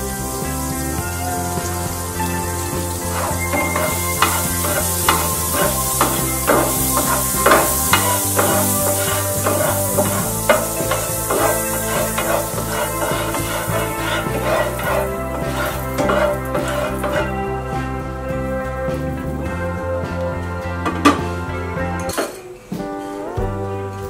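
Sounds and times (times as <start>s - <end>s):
food sizzling in hot fat: 0.0s - 17.7s
background music: 0.0s - 24.0s
spatula scraping frying pan: 2.5s - 17.5s.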